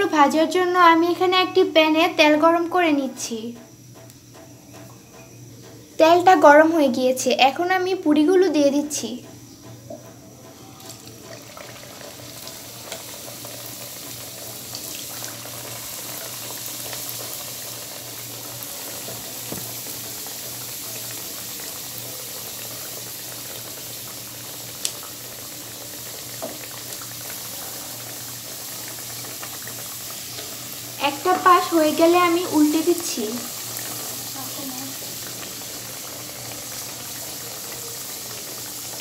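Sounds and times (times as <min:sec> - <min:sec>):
food sizzling in hot oil: 0:00.0 - 0:39.0
sharp tick: 0:03.6 - 0:04.5.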